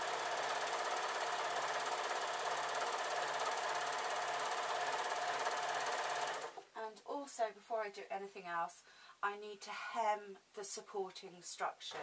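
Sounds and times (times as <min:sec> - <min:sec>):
overlocker sewing machine running: 0:00.0 - 0:06.6.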